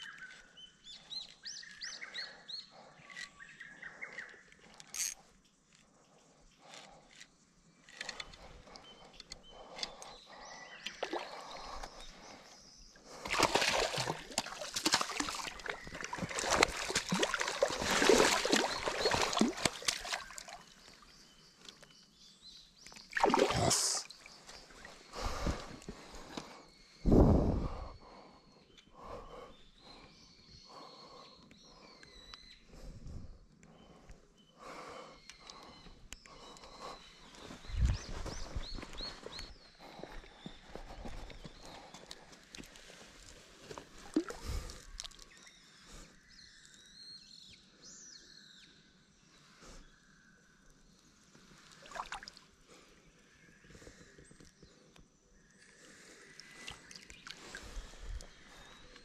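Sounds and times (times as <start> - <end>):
fish splashing at surface: 13.2 - 20.5, 23.2 - 24.0.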